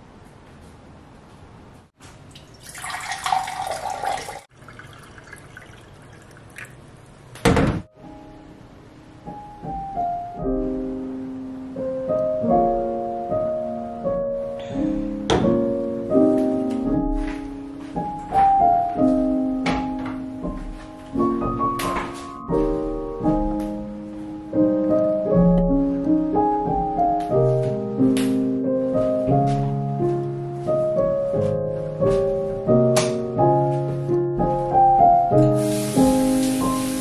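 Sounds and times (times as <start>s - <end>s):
tap water rushing into a glass: 2.3s - 6.9s
sharp thunk: 7.4s - 7.9s
piano music: 7.8s - 37.0s.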